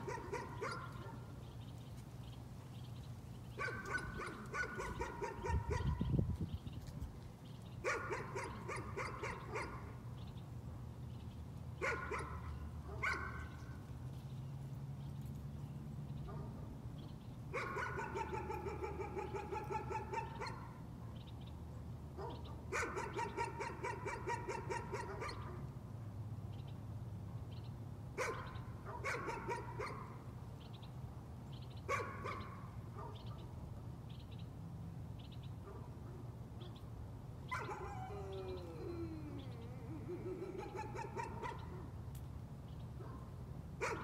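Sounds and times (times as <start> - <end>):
dog barking: 0.0 - 1.2, 3.6 - 6.1, 7.8 - 9.9, 11.8 - 13.6, 17.5 - 20.8, 22.2 - 25.6, 28.2 - 30.2, 31.9 - 33.5, 37.5 - 38.4, 40.2 - 41.9, 43.0 - 44.0
dog howling call: 37.5 - 41.7.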